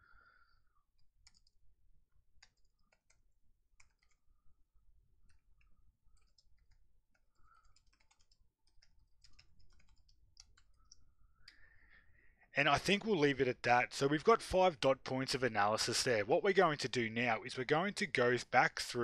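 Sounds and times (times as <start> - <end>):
faint keyboard typing: 0.9 - 11.7.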